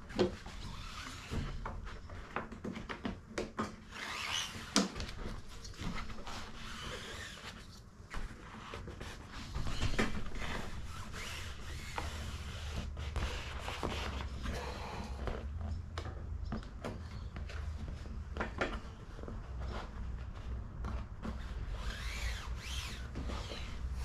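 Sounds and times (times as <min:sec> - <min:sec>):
vinyl sheet rustling and scraping: 0:03.8 - 0:14.6, 0:17.5 - 0:24.0.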